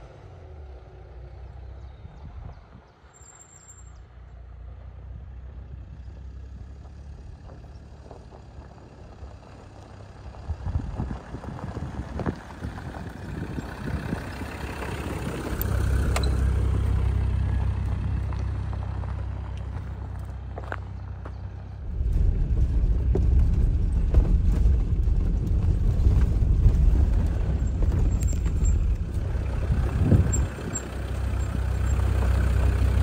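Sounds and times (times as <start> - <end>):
car engine rumble passing: 0.0 - 33.0
tyres crunching on gravel: 6.0 - 33.0.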